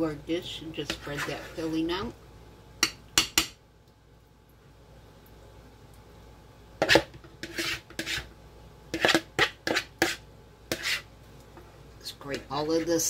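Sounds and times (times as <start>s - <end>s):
spoon scraping mixing bowl: 0.8s - 1.8s, 6.8s - 8.3s, 8.9s - 11.1s, 12.2s - 13.0s.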